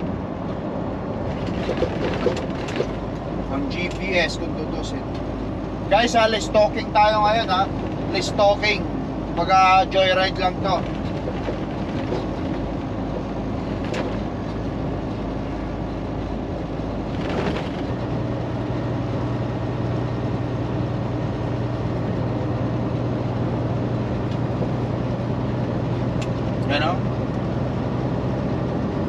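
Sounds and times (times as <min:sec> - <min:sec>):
road noise: 0:00.0 - 0:29.0
truck diesel engine rumble: 0:00.0 - 0:29.0.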